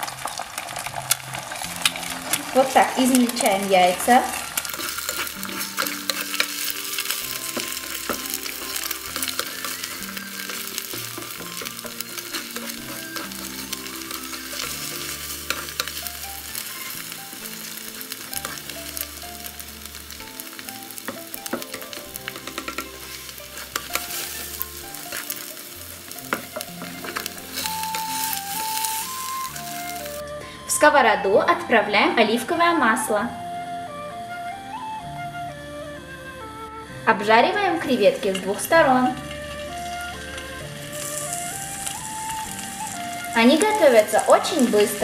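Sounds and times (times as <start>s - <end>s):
eggs sizzling in oil: 0.0s - 45.0s
spatula scraping pan: 1.0s - 30.2s
spatula tapping on pan: 21.0s - 23.0s.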